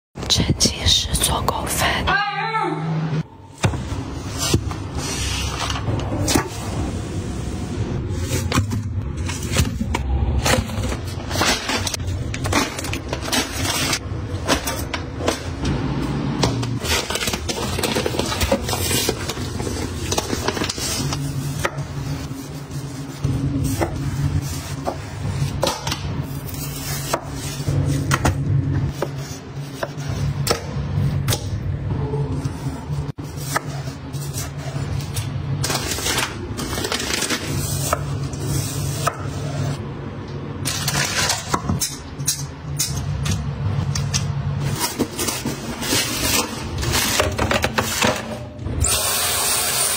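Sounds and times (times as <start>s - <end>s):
plastic packaging handled in sink: 16.8s - 25.5s, 35.6s - 37.9s.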